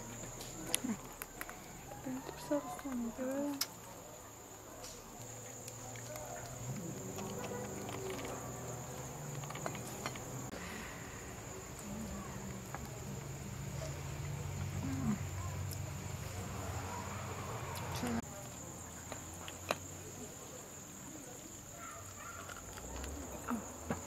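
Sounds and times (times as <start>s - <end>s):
crickets chirping: 0.0s - 24.0s.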